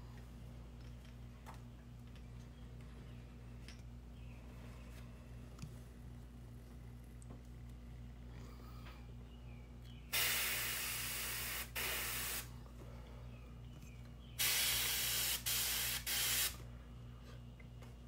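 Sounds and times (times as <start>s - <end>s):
airbrush spraying hiss: 10.2s - 12.5s, 14.4s - 16.6s.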